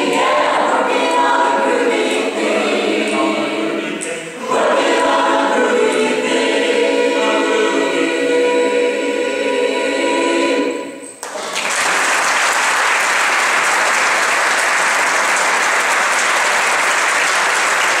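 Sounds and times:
choir holding a chord: 0.0 - 11.1
audience applause: 11.2 - 18.0.

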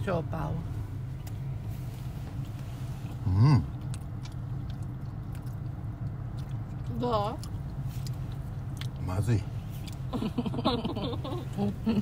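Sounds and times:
car cabin hum: 0.0 - 12.0
chewing clicks: 3.7 - 9.0.

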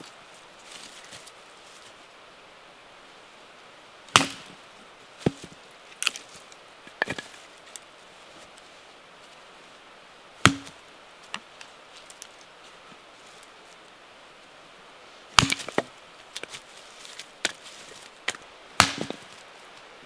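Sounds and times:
hatchet chopping wood: 4.1 - 4.5, 10.4 - 10.8, 15.4 - 15.9, 18.3 - 19.3.

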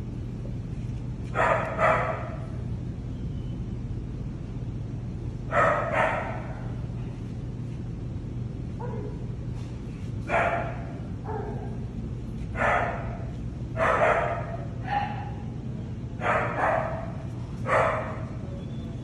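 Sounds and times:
steady low hum: 0.0 - 19.0
dog barking: 1.4 - 2.6, 5.5 - 6.8, 8.8 - 9.2, 10.3 - 11.8, 12.5 - 15.4, 16.2 - 18.4.

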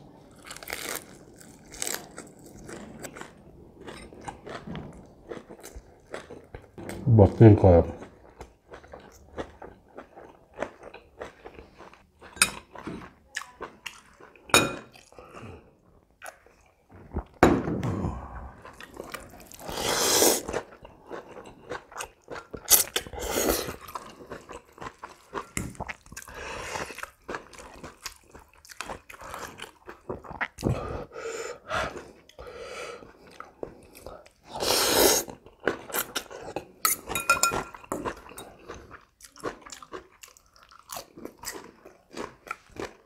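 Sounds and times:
slurping noodles: 18.6 - 20.7, 22.7 - 23.8, 34.5 - 35.4.

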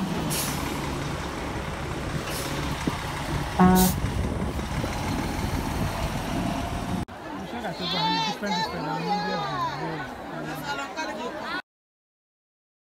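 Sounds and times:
vehicle engines running: 0.0 - 7.2
air brake hiss: 0.3 - 0.6
car horn toot: 3.6 - 4.0.

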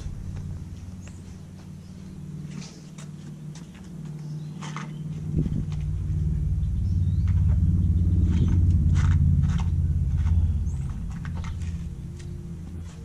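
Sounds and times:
low engine rumble: 0.0 - 13.0.

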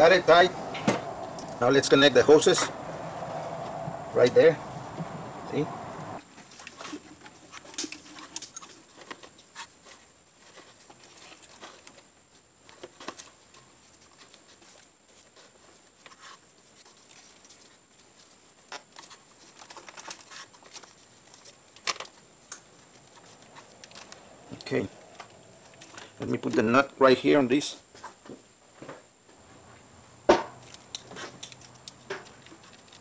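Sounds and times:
rubber hoses clicking and rubbing: 6.4 - 26.8, 30.6 - 33.0.

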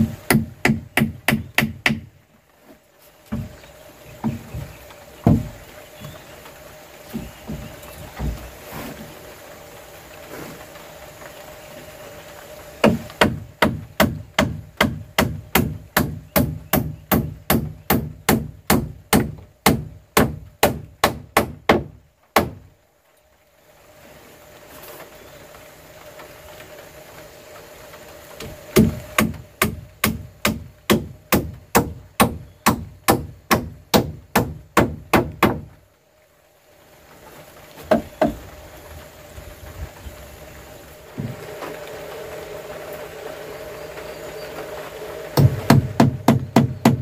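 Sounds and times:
hammer striking wooden boards: 0.3 - 2.1, 4.2 - 5.6, 12.8 - 22.6, 28.8 - 35.7, 37.9 - 38.4, 45.4 - 47.0.

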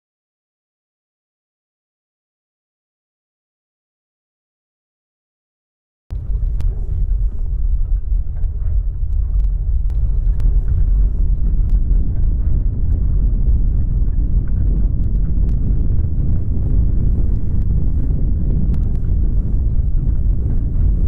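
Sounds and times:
deep earthquake rumble: 6.1 - 21.0.

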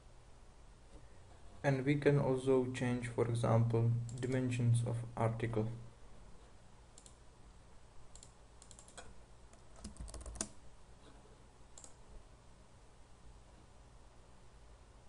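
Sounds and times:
low steady hum: 0.0 - 15.0
keyboard keystrokes: 8.2 - 10.6
mouse clicks: 11.8 - 12.0.

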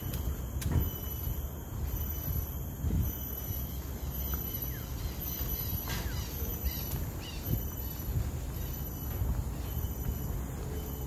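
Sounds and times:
high-pitched insect drone: 0.0 - 11.0
birds chirping and calling: 3.3 - 11.0.

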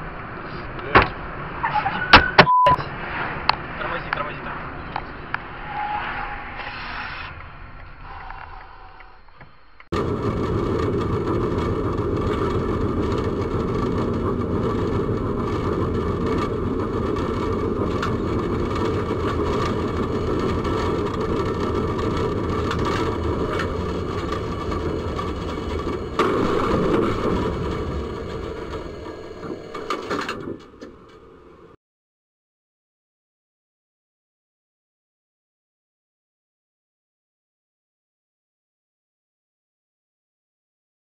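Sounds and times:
tram wheels rumbling on rails: 7.7 - 31.8.

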